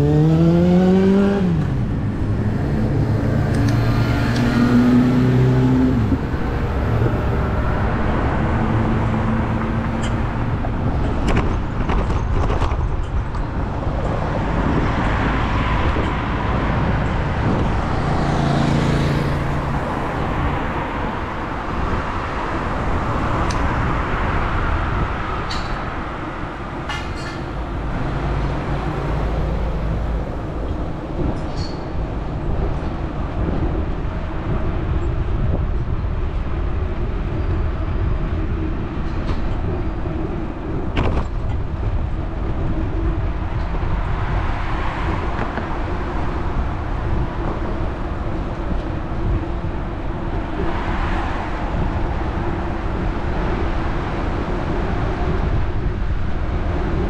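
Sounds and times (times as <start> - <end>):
vehicle passing hum: 0.0 - 11.2, 13.8 - 25.4
rumble of passing vehicles: 0.0 - 57.0.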